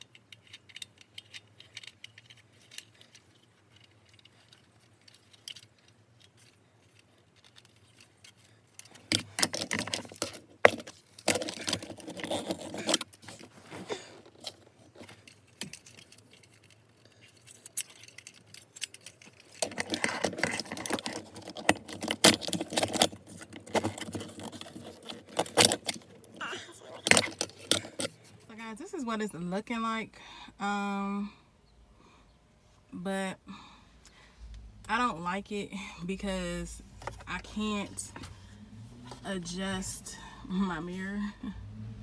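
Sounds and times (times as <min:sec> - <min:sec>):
plastic phone mount rattling and clicking: 0:00.0 - 0:13.4, 0:14.3 - 0:28.2.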